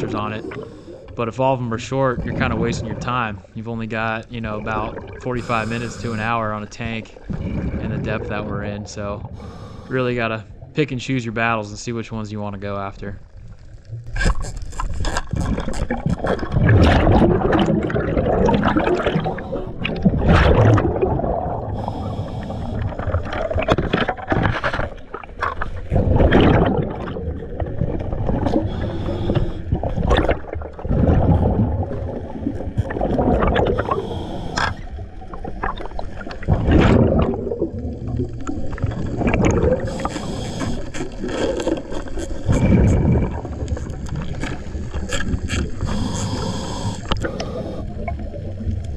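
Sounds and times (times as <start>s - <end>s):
bubbles gurgling underwater: 1.8s - 9.3s, 15.4s - 34.2s, 35.0s - 48.9s
regulator inhalation hiss: 5.4s - 6.3s, 21.8s - 22.8s, 28.7s - 29.6s, 33.8s - 34.8s, 39.8s - 41.0s, 45.8s - 48.0s.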